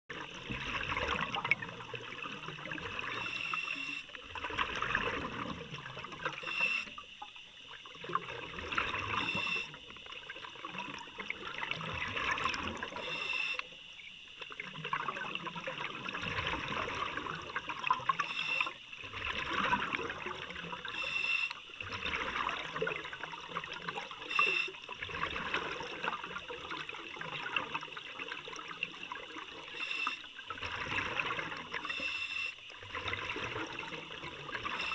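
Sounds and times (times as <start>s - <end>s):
gurgling exhaled bubbles: 0.1s - 6.7s, 7.6s - 13.3s, 14.4s - 21.0s, 21.7s - 29.8s, 30.4s - 32.0s, 32.7s - 34.9s
regulator hissing inhalations: 6.4s - 7.0s, 13.0s - 13.7s, 18.2s - 18.8s, 20.9s - 21.6s, 24.2s - 24.8s, 29.7s - 30.3s, 31.9s - 32.6s.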